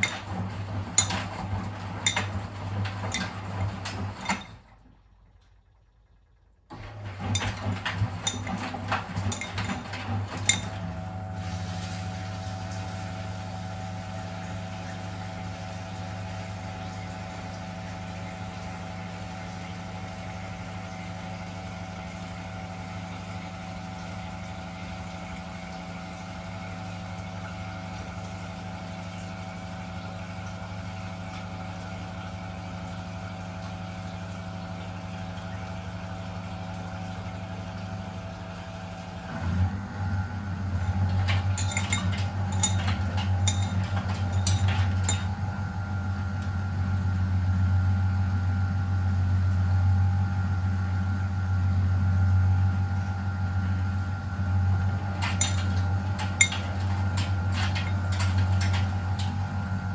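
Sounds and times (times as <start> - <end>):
washing machine clattering knocks: 0.0 - 4.7, 7.0 - 11.0, 40.8 - 45.5, 55.0 - 59.9
washing machine motor hum: 0.0 - 59.9.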